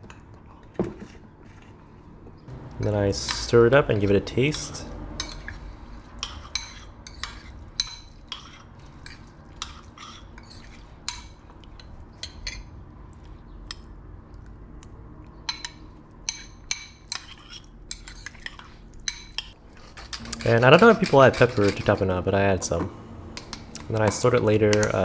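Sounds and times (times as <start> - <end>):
low steady hum: 2.5 - 6.7, 19.0 - 25.0.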